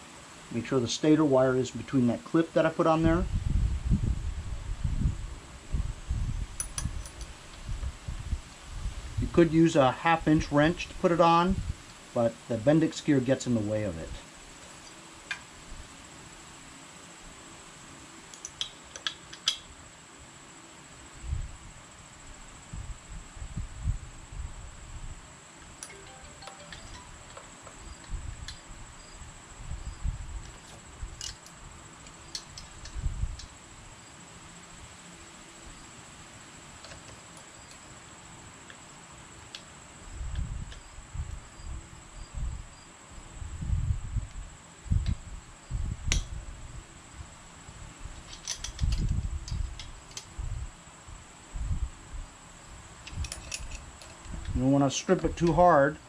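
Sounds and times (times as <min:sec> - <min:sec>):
high-pitched background tone: 0:25.8 - 0:27.5.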